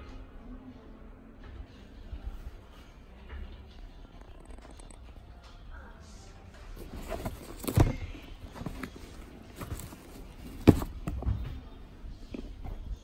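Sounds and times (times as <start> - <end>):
sneaker rustling and knocking: 6.8 - 13.0.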